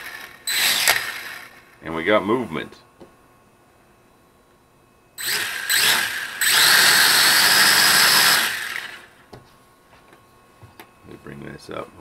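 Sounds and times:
toy quadcopter motors spinning: 0.0s - 1.6s, 5.2s - 9.1s.

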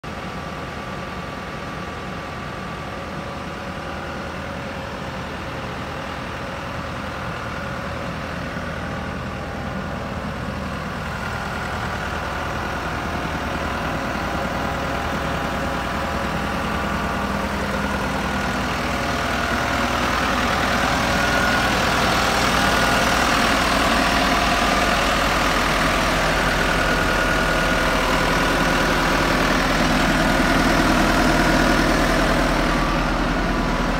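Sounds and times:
diesel engine idling: 0.0s - 33.9s.

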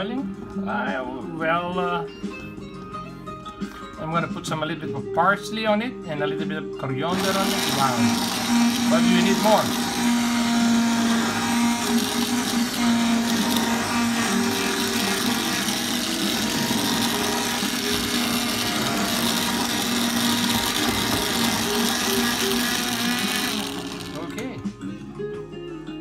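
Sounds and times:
immersion blender running: 7.1s - 24.6s.

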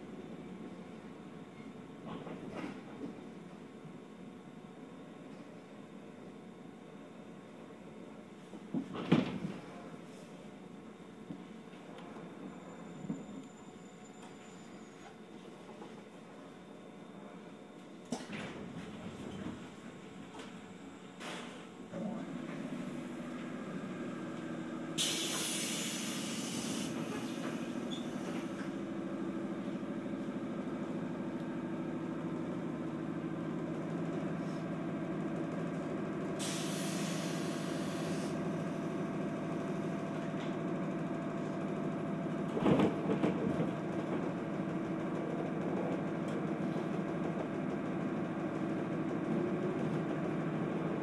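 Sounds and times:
train motors and wheels humming: 0.0s - 51.0s
air hissing: 25.0s - 27.7s.

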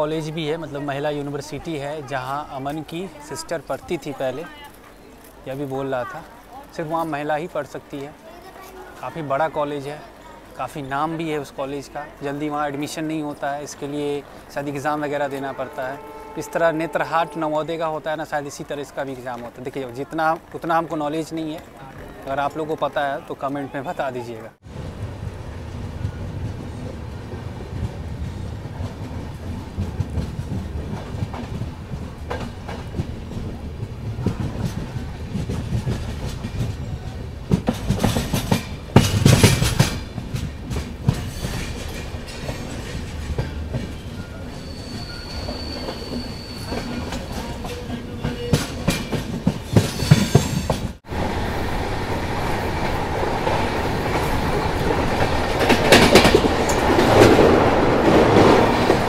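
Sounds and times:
train wheels rumbling clickety-clack: 24.7s - 51.2s, 52.0s - 59.0s.

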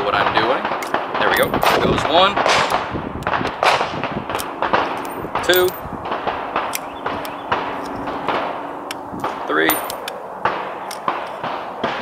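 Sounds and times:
revolver metallic clicks: 4.3s - 5.8s, 6.6s - 10.2s, 10.8s - 11.6s.

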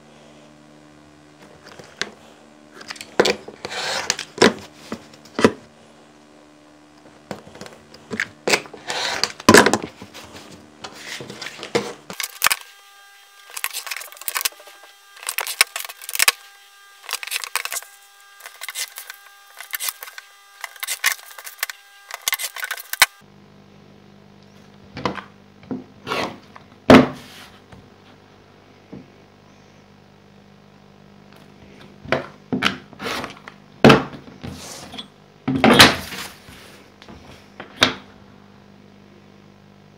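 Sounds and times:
card sheets rustling: 7.4s - 12.8s, 13.4s - 16.4s, 17.0s - 23.2s
blade scraping through card: 13.5s - 16.4s, 17.0s - 23.2s.

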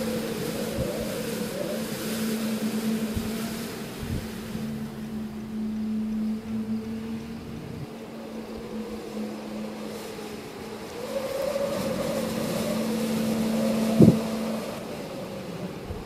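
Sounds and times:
steady low hum: 0.0s - 16.0s
wind rushing past microphone: 0.0s - 16.0s.

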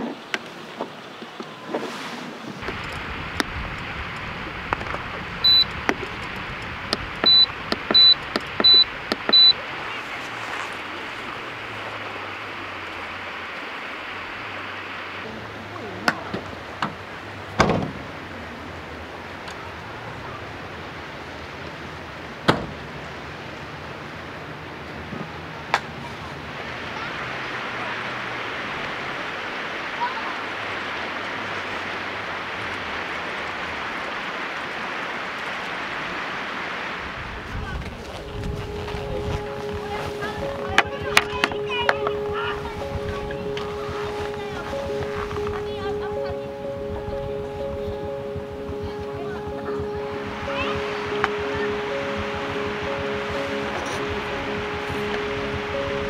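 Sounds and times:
steady background hiss: 0.0s - 56.0s
short high electronic beeps: 5.4s - 5.7s, 7.2s - 9.6s.

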